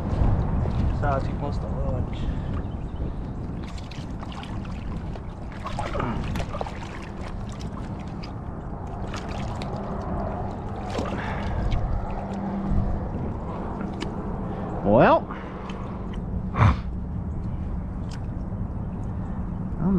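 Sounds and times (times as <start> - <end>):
wind rumble on microphone: 0.0 - 19.9
alligator splashing in water: 3.4 - 14.2.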